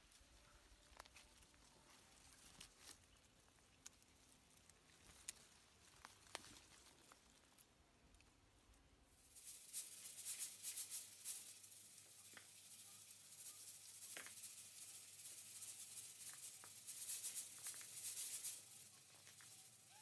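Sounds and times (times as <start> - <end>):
faint high chirps: 11.7 - 16.6, 17.2 - 20.0.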